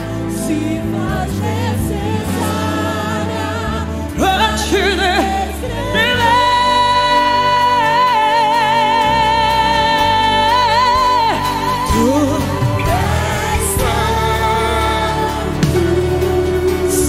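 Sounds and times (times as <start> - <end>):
band accompaniment: 0.0 - 17.0
woman singing with vibrato: 0.2 - 17.0.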